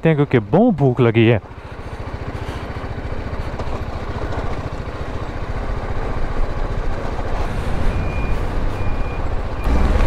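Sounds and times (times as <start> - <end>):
road and wind noise: 0.0 - 10.0
motorcycle engine running: 0.2 - 7.5.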